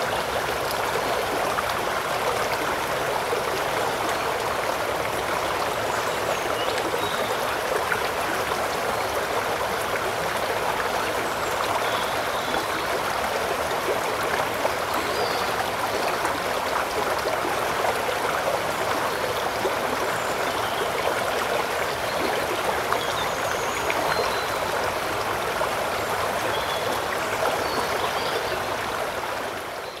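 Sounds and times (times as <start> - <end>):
river flowing: 0.0 - 30.0.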